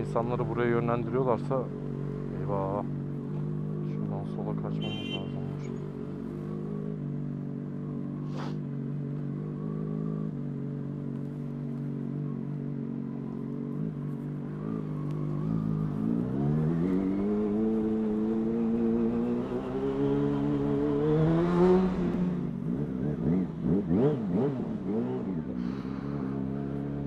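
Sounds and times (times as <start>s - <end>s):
motorcycle engine accelerating: 5.6s - 27.0s.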